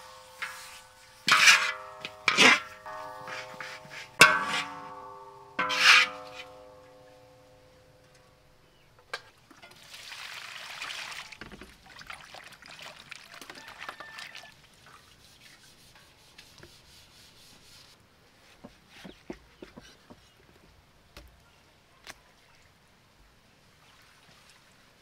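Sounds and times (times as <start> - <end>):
water pouring and sloshing: 9.2 - 15.8, 23.6 - 25.0.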